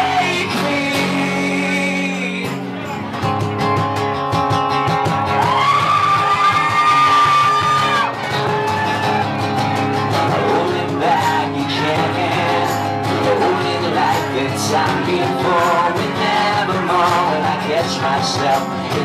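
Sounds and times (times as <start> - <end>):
person singing: 0.0 - 2.8, 10.1 - 19.0
strummed acoustic guitars: 0.0 - 19.0.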